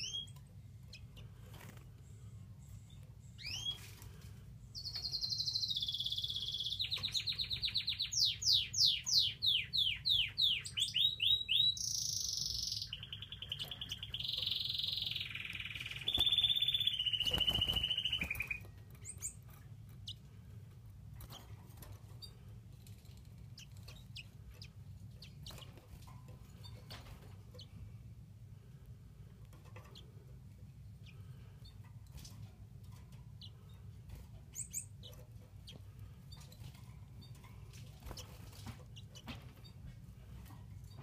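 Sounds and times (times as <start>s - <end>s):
steady low hum: 0.0s - 6.6s, 12.8s - 41.0s
chicks cheeping: 4.8s - 19.4s.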